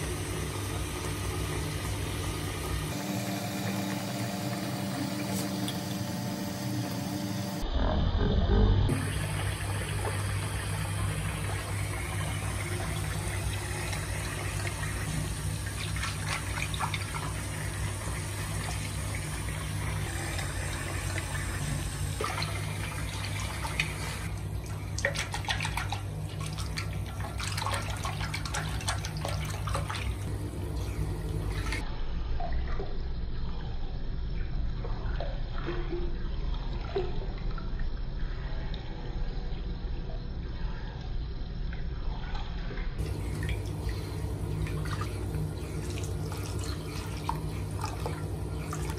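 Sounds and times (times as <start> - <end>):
tap water running into sink: 0.0 - 7.5, 8.9 - 31.8, 43.0 - 48.9
water splashing and dripping: 8.9 - 31.8, 43.0 - 48.9.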